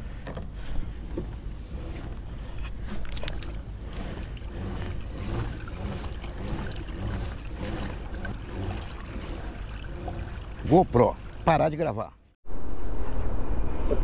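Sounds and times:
water lapping against kayak hull: 0:00.0 - 0:12.3
steady low rumble: 0:12.5 - 0:14.0.

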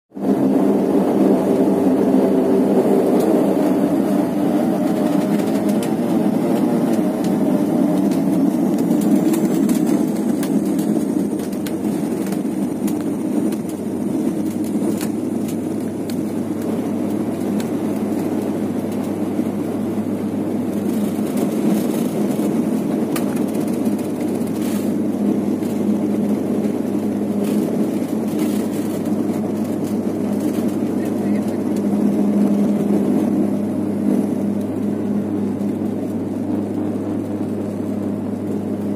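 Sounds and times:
turboprop engine drone: 0:00.1 - 0:38.9
tyres rumbling on tarmac: 0:00.1 - 0:38.9.

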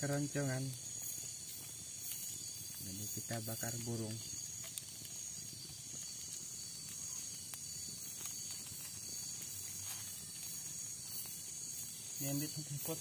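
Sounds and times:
night insects chorus: 0:00.0 - 0:13.0
wood fire crackling: 0:00.0 - 0:13.0.

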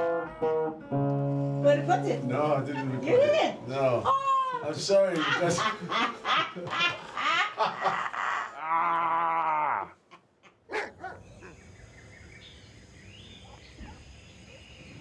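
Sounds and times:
people laughing: 0:04.1 - 0:09.4
drawn-out vocal cry: 0:08.0 - 0:11.6.

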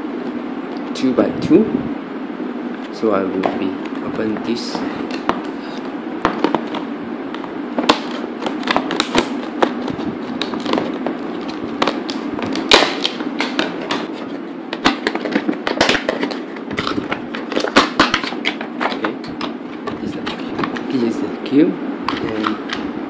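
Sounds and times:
plastic packaging crackling: 0:07.8 - 0:21.1.

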